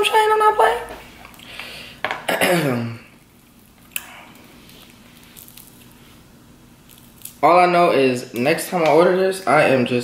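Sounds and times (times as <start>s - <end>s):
fried crab crackling: 3.2s - 8.5s.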